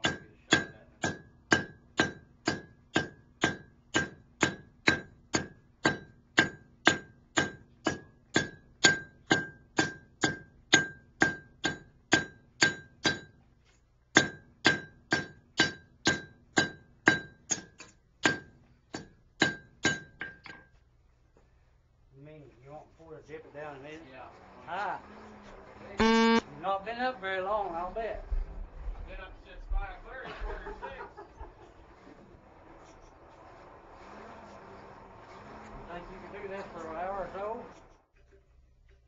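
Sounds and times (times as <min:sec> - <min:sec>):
hammer striking steel on anvil: 0:00.0 - 0:13.4, 0:14.2 - 0:20.7.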